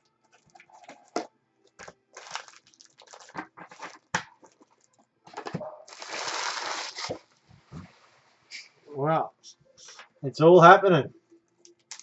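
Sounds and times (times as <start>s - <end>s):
foil packs crinkling and rustling: 1.8s - 4.9s, 5.9s - 7.3s.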